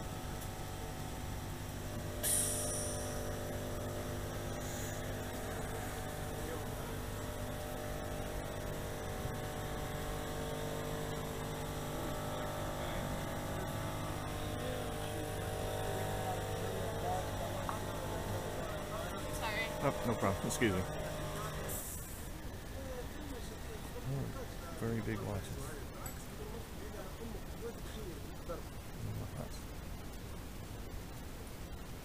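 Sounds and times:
low electrical hum: 0.0s - 32.0s
short hiss: 2.1s - 5.3s, 21.7s - 22.4s.

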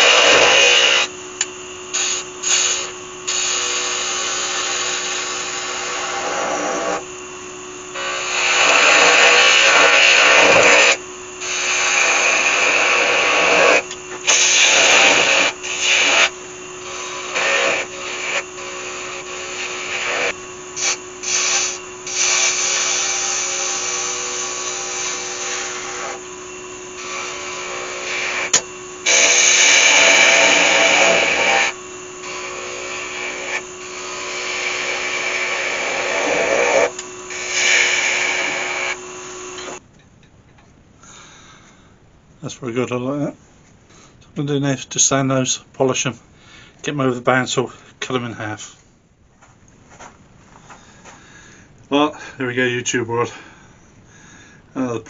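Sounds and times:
chisel scraping wood on lathe: 0.0s - 1.1s, 1.9s - 7.2s, 7.9s - 39.8s
lathe motor hum: 0.0s - 39.8s.

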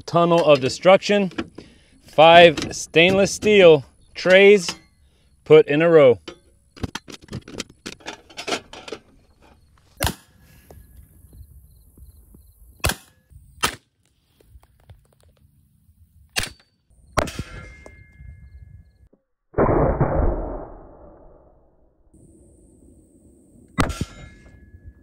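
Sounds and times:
metallic clangs on steel: 16.4s - 18.5s, 23.8s - 25.0s.

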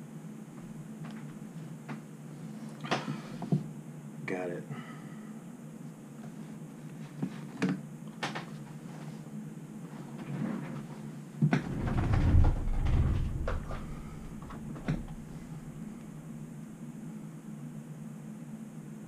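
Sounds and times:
low rumbling of object shifted: 11.6s - 16.1s.

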